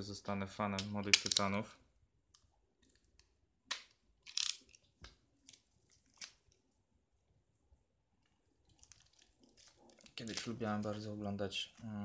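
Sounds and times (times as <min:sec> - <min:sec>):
plastic film crinkling: 0:08.6 - 0:11.1.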